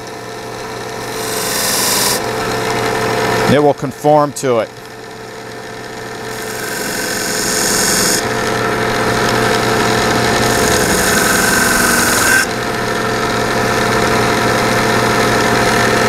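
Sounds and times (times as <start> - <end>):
belt sander motor humming: 0.0 - 3.7, 4.8 - 16.0.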